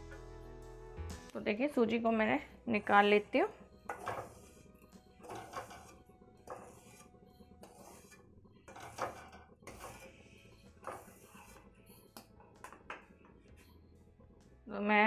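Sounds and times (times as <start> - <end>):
wooden spatula scraping metal pan: 3.8 - 11.8.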